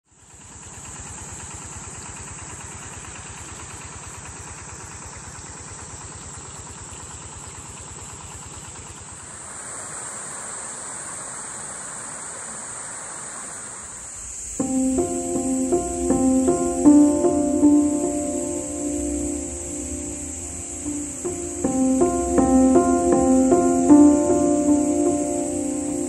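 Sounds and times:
high-pitched insect chorus: 0:09.1 - 0:26.0.

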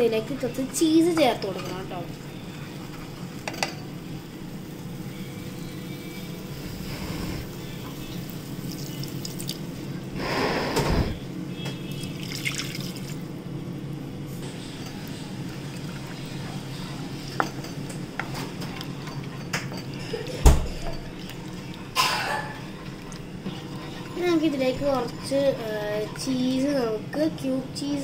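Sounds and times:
spatula stirring sauce: 0:22.6 - 0:26.8.

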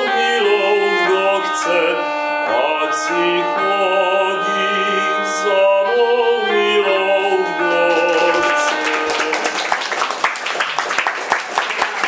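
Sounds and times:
bagpipes playing over a drone: 0:00.0 - 0:09.0
man singing: 0:00.0 - 0:09.7
audience clapping: 0:07.7 - 0:12.0.

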